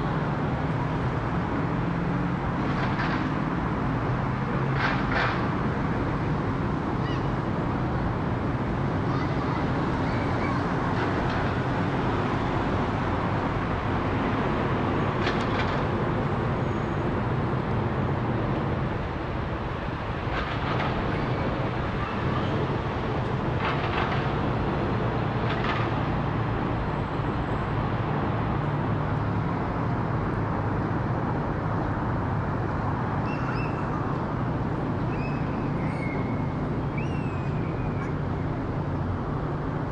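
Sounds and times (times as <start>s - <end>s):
jet engines rumbling overhead: 0.0s - 39.9s.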